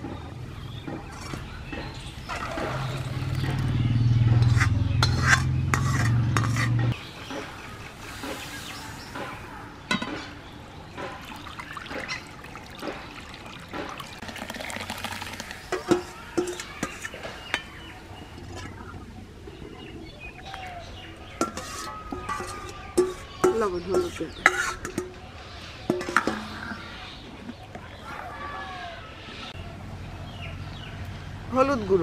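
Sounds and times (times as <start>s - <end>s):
food scraped from metal pan: 4.4s - 7.0s, 21.3s - 23.5s, 24.1s - 25.1s
water pouring from jug: 11.2s - 17.5s
ladle clinking against bowl: 15.7s - 18.8s, 21.4s - 25.2s.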